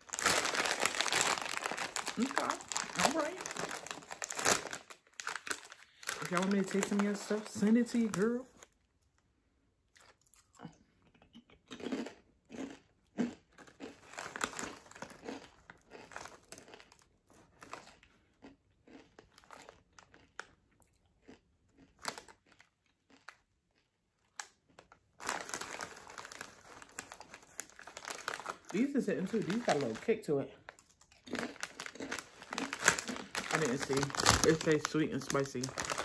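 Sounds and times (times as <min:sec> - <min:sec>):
chip bag crinkling: 0:00.0 - 0:08.8, 0:13.6 - 0:18.1, 0:21.2 - 0:36.0
person crunching potato chips: 0:00.0 - 0:09.2, 0:09.9 - 0:36.0.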